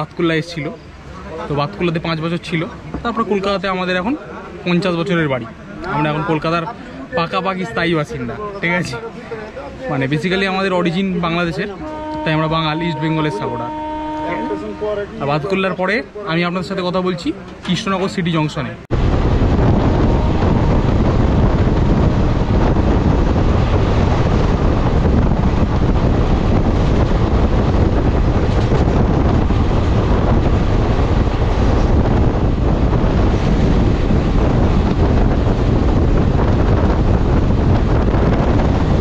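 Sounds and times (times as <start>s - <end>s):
wind buffeting microphone: 18.8s - 39.0s
train wheels on rails: 19.0s - 39.0s.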